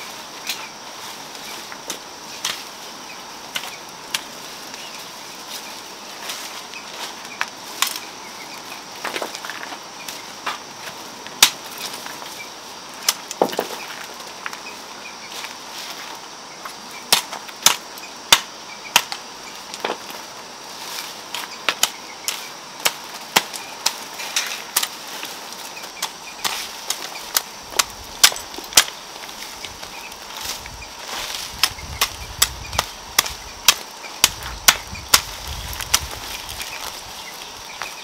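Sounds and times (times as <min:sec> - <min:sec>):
plant stems snapping: 0:30.4 - 0:37.0.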